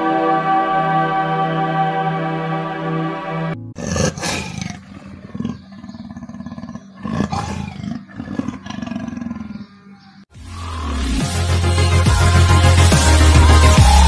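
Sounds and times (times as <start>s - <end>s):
rough pulsing growl: 3.8s - 10.0s
leopard roaring: 3.8s - 10.1s.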